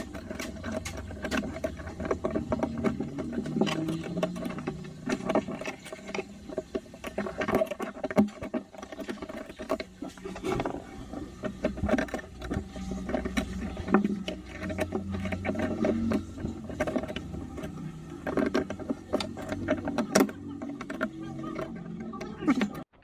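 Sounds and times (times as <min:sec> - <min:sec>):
small metal parts clicking: 0:00.0 - 0:23.0.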